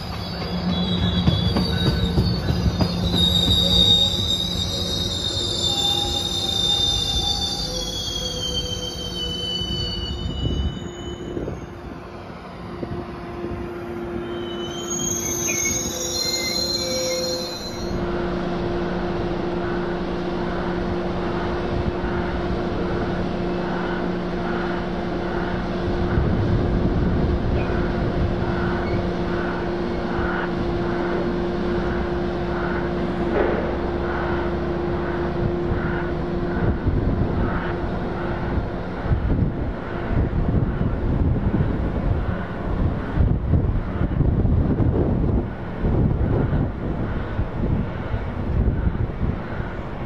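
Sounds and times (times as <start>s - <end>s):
train wheels squealing on rails: 0.0s - 18.4s, 27.5s - 36.8s
locomotive drone: 0.0s - 50.0s.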